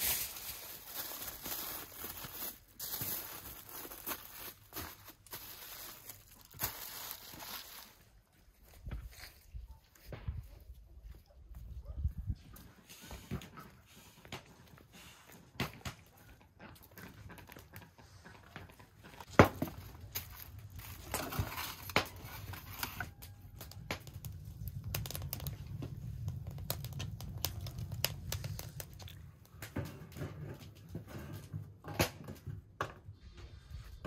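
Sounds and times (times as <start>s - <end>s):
aluminium foil crinkling: 0.0s - 9.5s, 19.2s - 29.8s.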